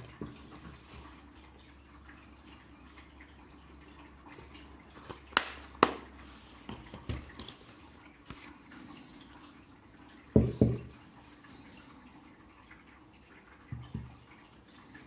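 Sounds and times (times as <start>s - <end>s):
tap on table: 10.4s - 10.9s.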